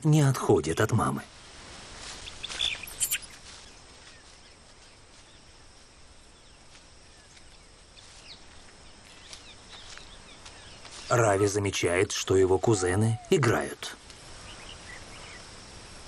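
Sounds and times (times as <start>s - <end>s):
faint steady hiss: 0.0s - 16.0s
short high bird chirps: 2.2s - 3.4s.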